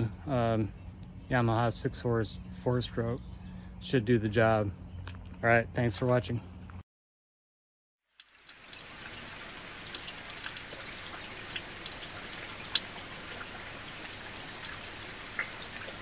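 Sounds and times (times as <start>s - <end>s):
rain drop ticks: 8.2s - 16.0s
rain pattering: 8.2s - 16.0s.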